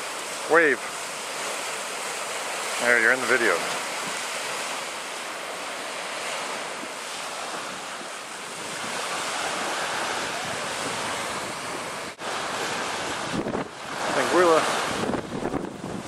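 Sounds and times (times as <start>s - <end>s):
sea surf washing on a beach: 0.0s - 16.0s
wind buffeting the microphone: 5.5s - 16.0s.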